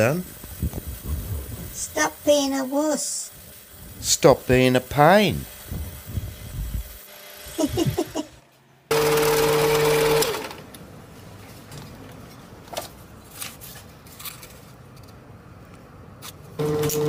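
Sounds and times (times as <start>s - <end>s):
lathe motor whining: 5.4s - 10.7s, 16.6s - 17.0s.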